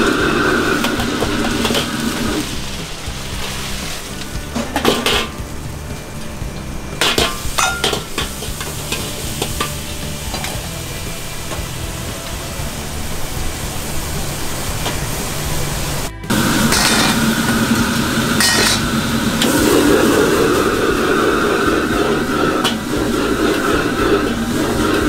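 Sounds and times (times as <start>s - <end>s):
food sizzling in a wok: 0.0s - 25.0s
metal ladle scraping a wok: 0.2s - 12.5s, 16.3s - 25.0s
ladle clinking against wok: 7.0s - 10.6s, 18.4s - 18.8s.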